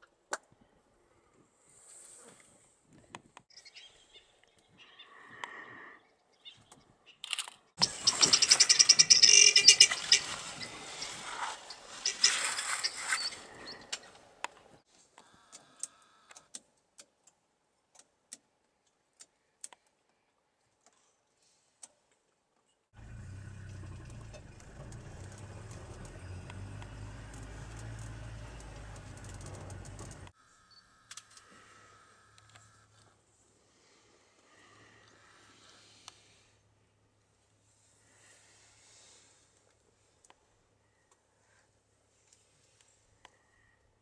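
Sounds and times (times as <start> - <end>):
guineafowl alarm cackle: 7.8 - 10.7
vehicle engine idling: 23.0 - 30.3.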